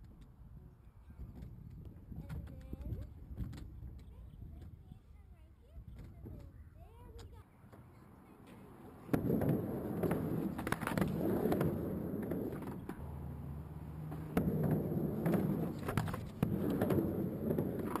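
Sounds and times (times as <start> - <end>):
skateboard clacking: 9.0 - 18.0
skateboard wheels rolling on ramp: 9.0 - 18.0.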